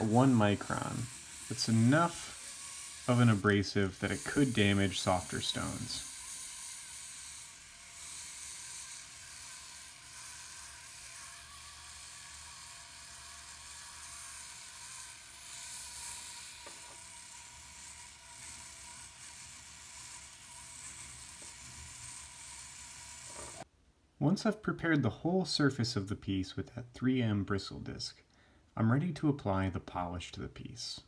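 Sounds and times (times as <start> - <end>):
bristle disc brushing wire hiss: 0.0 - 23.7.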